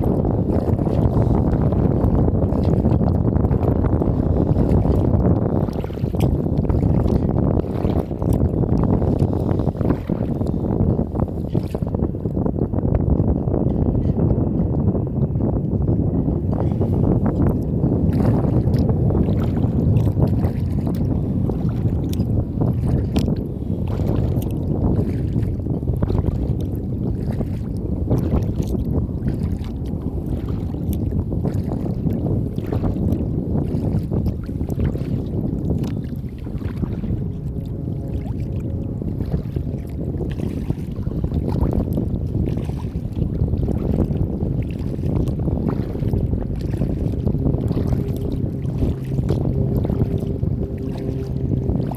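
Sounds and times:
paddle splashes and drips: 0.0s - 10.6s, 17.5s - 51.9s
water lapping against kayak: 0.0s - 51.9s
wind rumbling on microphone: 0.0s - 51.9s.

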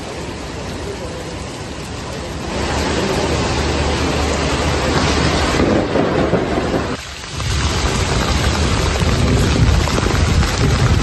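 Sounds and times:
heavy rain hissing: 0.0s - 11.0s
low rumble: 2.6s - 11.0s.

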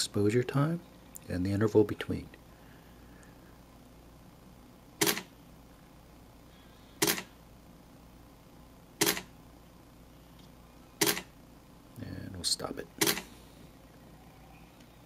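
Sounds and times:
camera shutter clacks: 5.0s - 5.3s, 7.0s - 7.3s, 9.0s - 9.3s, 11.0s - 11.3s, 13.0s - 13.2s.

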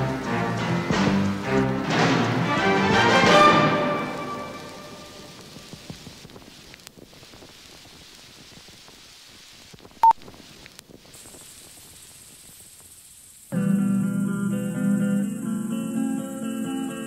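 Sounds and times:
faint hiss: 0.0s - 17.0s
thin high whine: 13.5s - 17.0s.

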